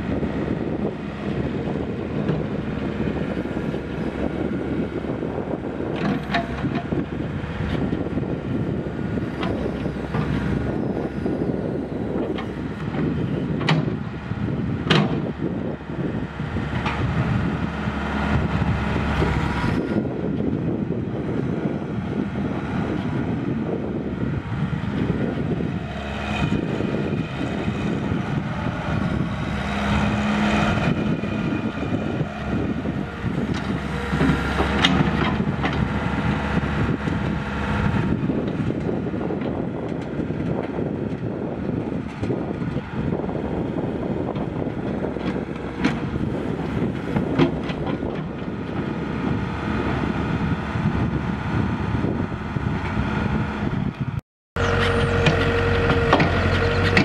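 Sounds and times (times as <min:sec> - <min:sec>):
diesel engine running: 0:00.0 - 0:57.0
hydraulic whine: 0:54.6 - 0:57.0.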